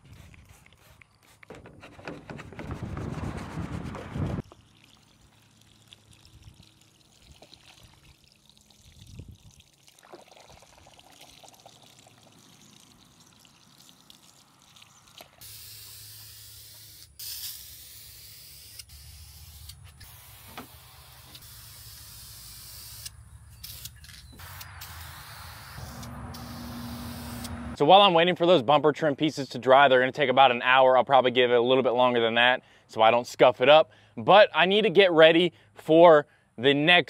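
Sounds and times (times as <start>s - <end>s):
aerosol spray can hissing: 0.1s - 1.5s, 15.4s - 27.7s
hose water splashing on plastic: 4.4s - 16.9s.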